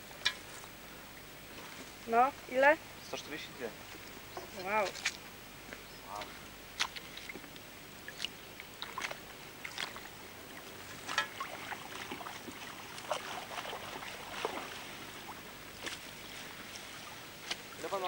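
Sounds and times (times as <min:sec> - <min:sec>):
water sloshing in a bucket: 0:06.2 - 0:18.0
fish splashing: 0:08.0 - 0:15.5.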